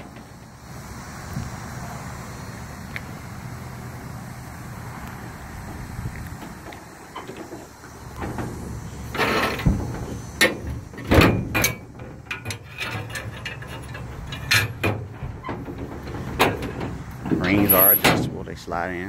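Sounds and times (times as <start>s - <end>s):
knocks and rattles in metal trailer: 6.4s - 18.6s.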